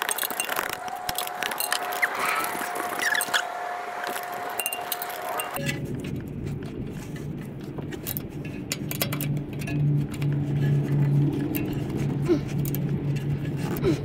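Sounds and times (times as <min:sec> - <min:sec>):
low hum: 0:00.0 - 0:14.0
metal wrench clicking: 0:08.0 - 0:13.8.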